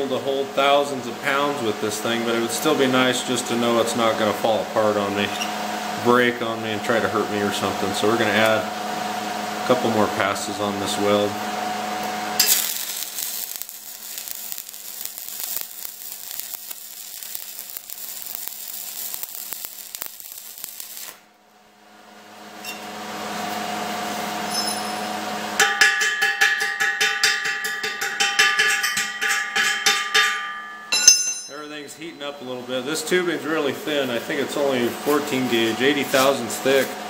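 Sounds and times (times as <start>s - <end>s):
welding arc crackling and hissing: 12.4s - 21.3s, 33.1s - 37.0s
sharp metallic clicks with ringing: 24.5s - 32.4s.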